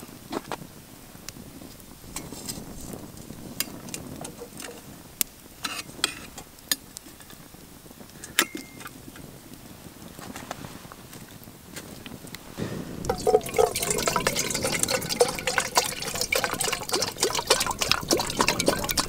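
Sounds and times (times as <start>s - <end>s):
metal kettle clinking on rod: 8.3s - 8.9s, 13.1s - 19.0s.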